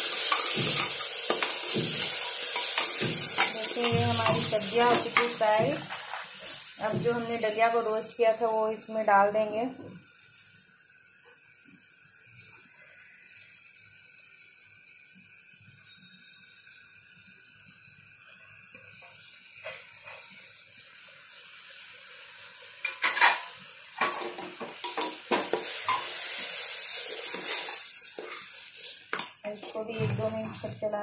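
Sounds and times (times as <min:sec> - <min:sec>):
vegetables sizzling: 0:00.0 - 0:31.0
spoon knocking and scraping a pot: 0:00.2 - 0:06.2, 0:22.8 - 0:26.1, 0:29.1 - 0:30.8.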